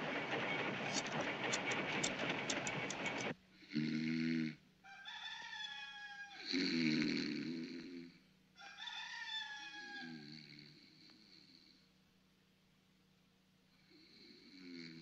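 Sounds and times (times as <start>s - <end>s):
person snoring: 3.6s - 4.6s, 6.4s - 8.2s, 13.8s - 15.0s.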